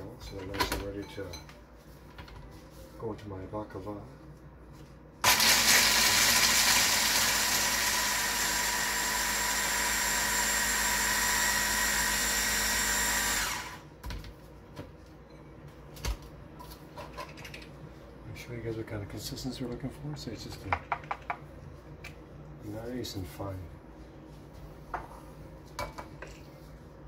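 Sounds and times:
hand blender grinding nuts: 5.2s - 13.8s.

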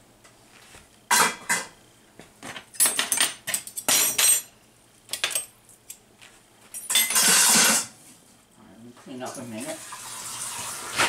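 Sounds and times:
utensils and dishes clattering: 1.1s - 1.7s, 2.8s - 4.5s, 6.8s - 8.0s.

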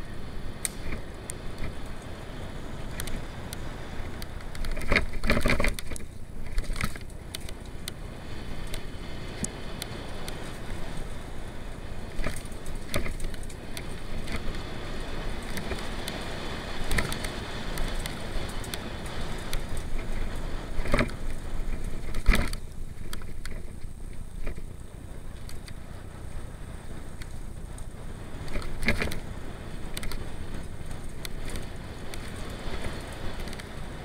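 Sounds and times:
bike tyres rumbling on dirt: 0.0s - 34.0s
bike knocking over bumps: 8.6s - 24.8s.

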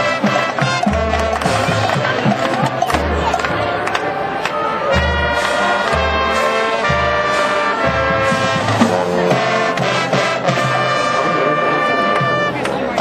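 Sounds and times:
brass chords: 0.0s - 13.0s.

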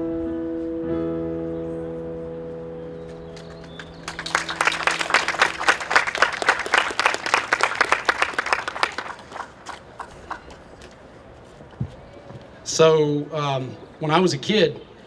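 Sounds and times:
guitars and keyboard chord: 0.0s - 5.7s
audience applauding: 3.4s - 10.6s.

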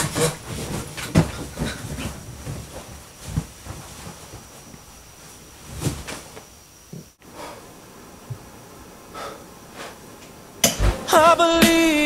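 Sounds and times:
quilt rustling: 0.0s - 6.5s.

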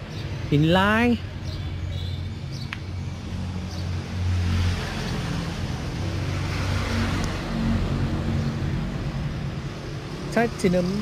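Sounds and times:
traffic engine hum: 0.0s - 11.0s
vehicle passing: 2.3s - 11.0s.

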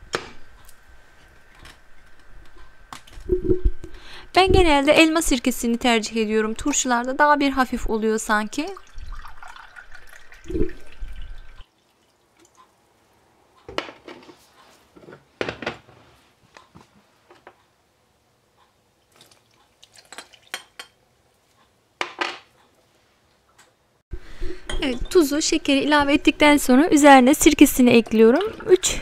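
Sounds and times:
liquid pouring into a glass: 8.7s - 12.2s.

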